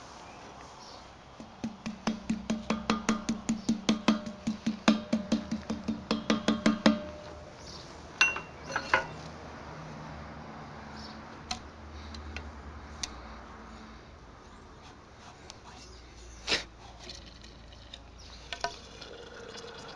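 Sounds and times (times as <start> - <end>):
metal ramrod clinking on pipe: 8.2 - 9.2.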